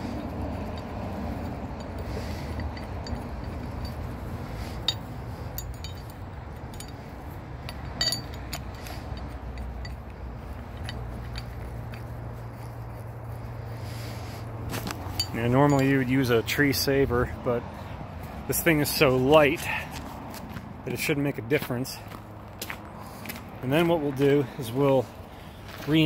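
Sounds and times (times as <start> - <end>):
winch cable and hook clinking: 0.0 - 13.8, 14.7 - 19.9
low steady rumble: 0.0 - 17.0.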